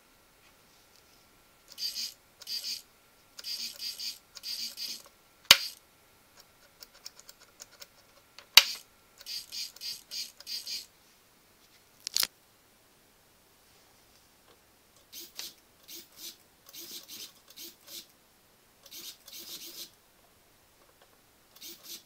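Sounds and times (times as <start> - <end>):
faint steady whine: 0.0 - 22.0
servos whirring in short bursts: 1.7 - 2.8, 3.4 - 5.8, 8.6 - 10.9, 15.1 - 18.1, 21.6 - 22.0.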